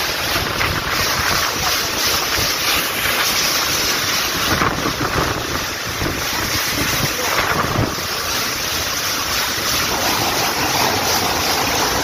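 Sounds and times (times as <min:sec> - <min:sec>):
strong wind on microphone: 0:00.0 - 0:08.2.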